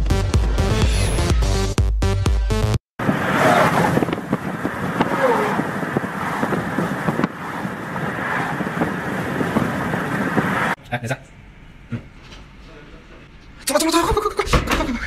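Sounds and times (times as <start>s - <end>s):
car road noise: 3.0s - 10.8s
wind buffeting microphone: 3.0s - 10.8s.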